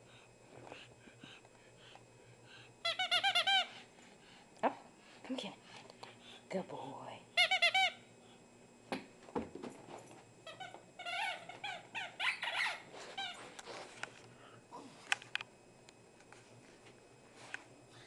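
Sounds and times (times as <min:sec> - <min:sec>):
squeaky toy squeaking: 0:02.9 - 0:03.7, 0:10.6 - 0:12.8.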